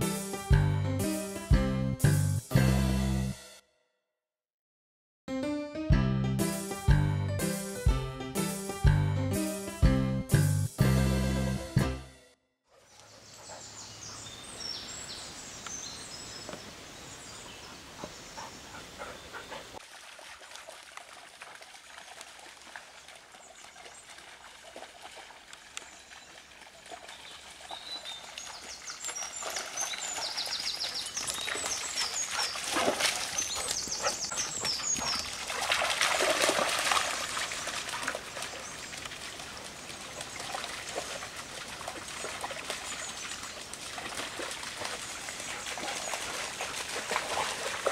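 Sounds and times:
dogs splashing in water: 18.8 - 47.9
stream trickling over stones: 19.8 - 47.9.

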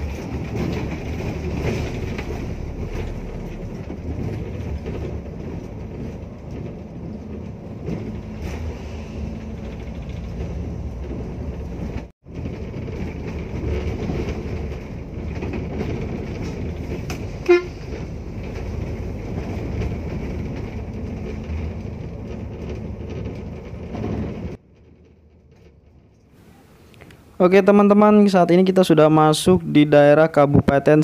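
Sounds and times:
bus engine and road rumble: 0.0 - 31.0
short horn toot: 17.4 - 17.8.

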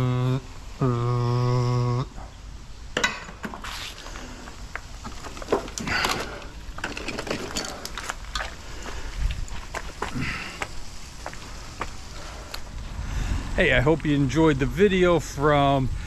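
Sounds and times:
broken rock and scrap metal crunching: 5.0 - 8.6.

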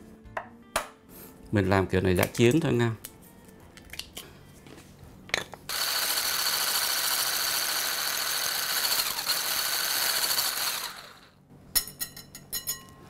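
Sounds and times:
electric blender whirring: 5.7 - 11.4.

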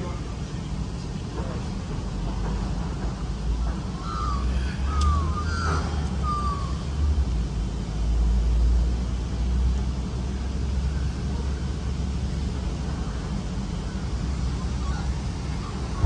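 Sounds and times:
low steady rumble: 0.0 - 16.0
crow cawing: 4.0 - 6.8.

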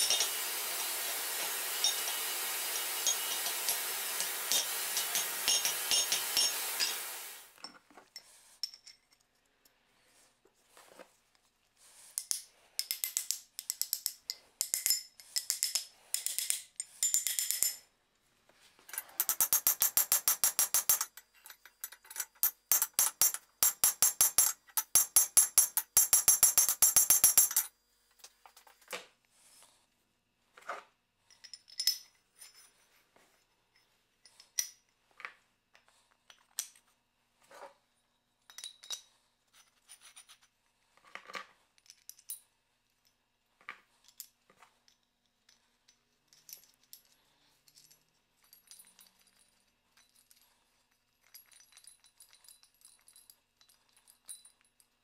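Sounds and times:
steel parts clinking: 0.0 - 9.4, 18.9 - 27.7
hammer striking steel: 1.3 - 7.2.

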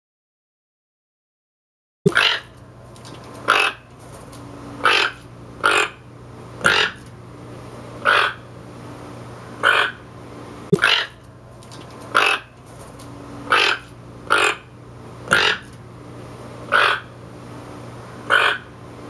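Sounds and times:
toucan croaking: 2.1 - 2.6, 3.4 - 3.9, 4.8 - 7.0, 8.0 - 8.5, 9.6 - 10.1, 10.7 - 11.2, 12.1 - 12.6, 13.5 - 15.7, 16.7 - 17.1, 18.2 - 18.7.

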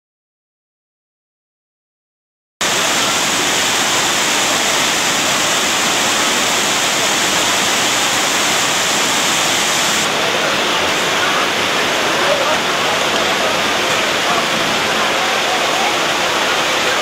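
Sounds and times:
water cascading and splashing: 2.6 - 17.0.

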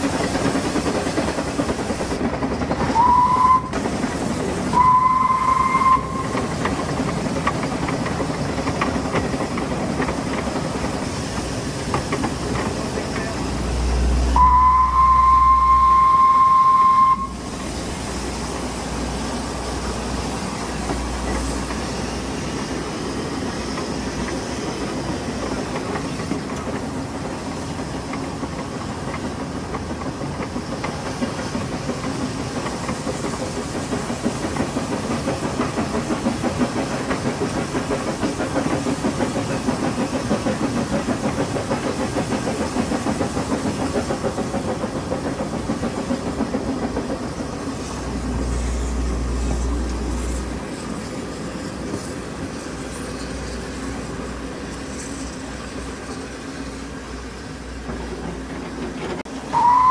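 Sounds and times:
steam locomotive rumbling on rails: 0.0 - 59.9
steam whistle blast: 3.0 - 3.8, 4.7 - 6.4, 14.4 - 17.5, 59.4 - 59.9.

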